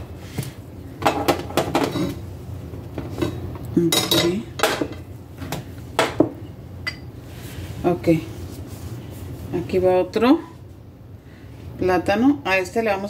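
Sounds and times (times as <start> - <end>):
dishes clattering: 1.0 - 2.2, 3.0 - 5.0
dishes knocking and clinking: 1.0 - 2.2, 3.0 - 7.1.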